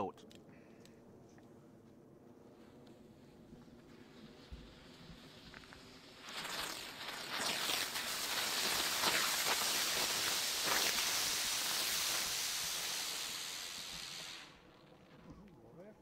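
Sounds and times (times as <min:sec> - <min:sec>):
firework hissing crackle: 0:03.0 - 0:15.2.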